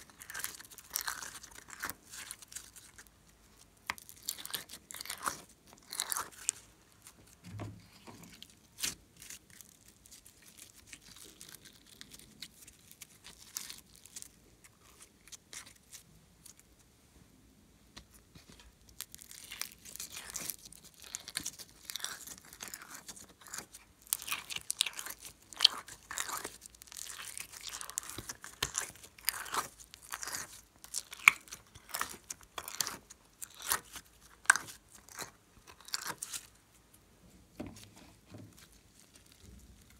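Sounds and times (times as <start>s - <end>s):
slime squelching and clicking: 18.9s - 36.6s.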